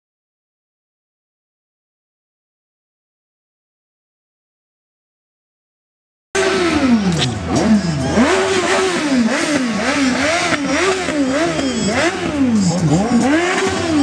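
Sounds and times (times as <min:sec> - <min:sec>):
vehicle engine revving: 0:06.4 - 0:14.0.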